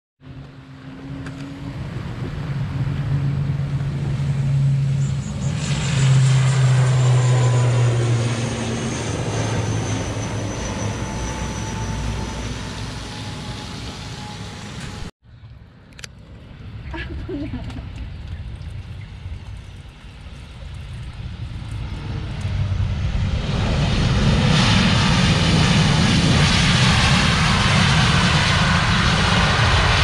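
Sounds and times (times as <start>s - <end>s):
turboprop airliner taking off: 0.2s - 30.0s.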